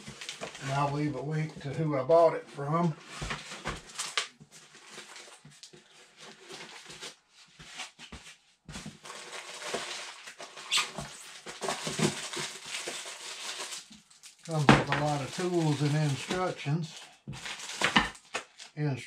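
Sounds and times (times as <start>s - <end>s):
plastic bags crinkling: 8.8s - 18.8s.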